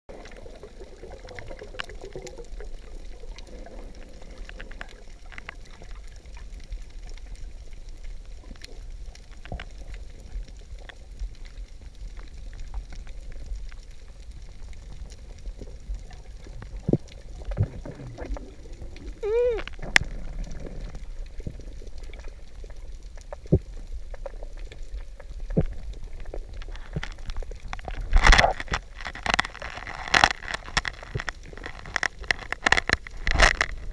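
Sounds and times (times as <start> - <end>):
steady low underwater rumble: 0.1 - 29.0
diver's exhalation bubbles gurgling: 15.2 - 28.6.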